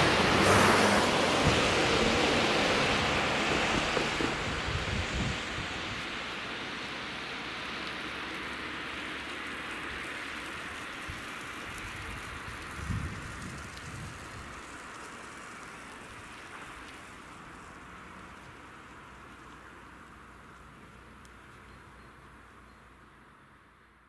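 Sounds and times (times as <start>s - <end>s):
wind gust on microphone: 0.0s - 6.2s, 11.9s - 14.6s
car tyre hiss on road: 0.0s - 23.5s.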